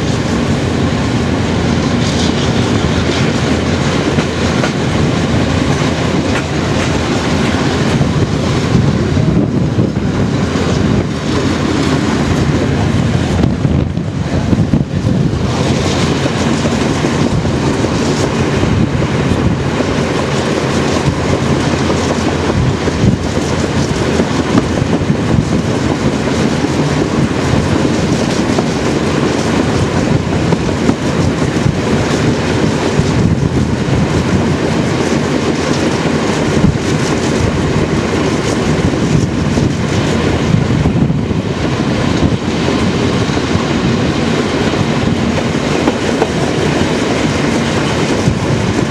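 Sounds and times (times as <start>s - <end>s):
train wheels rumbling on rails: 0.0s - 48.9s
wheels clicking over rail joints: 0.0s - 48.9s.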